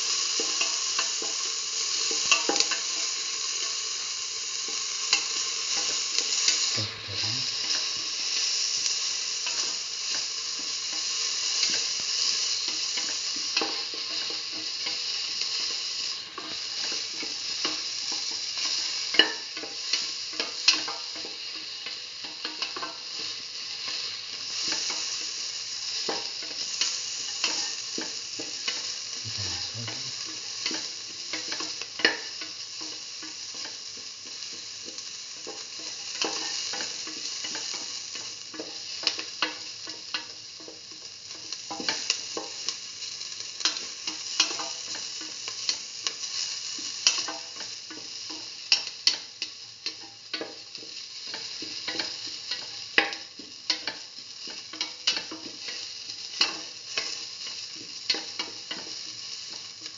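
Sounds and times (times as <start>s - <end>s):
onions sizzling in oil: 0.0s - 59.9s
spatula scraping and tapping pan: 46.8s - 59.9s.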